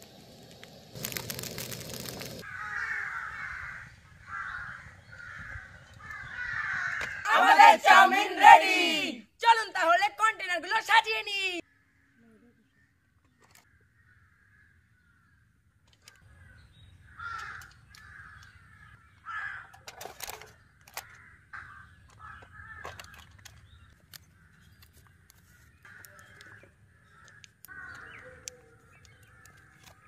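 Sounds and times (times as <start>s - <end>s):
crows cawing: 2.4s - 7.5s, 11.7s - 12.2s, 13.6s - 15.3s, 16.0s - 19.8s, 20.9s - 23.4s, 24.2s - 30.0s.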